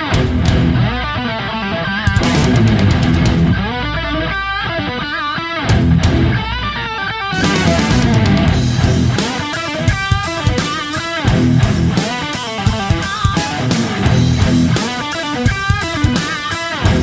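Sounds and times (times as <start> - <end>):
electric guitar: 0.0 - 17.0
rock instrumental music: 0.0 - 17.0
sharp hits: 2.1 - 4.9.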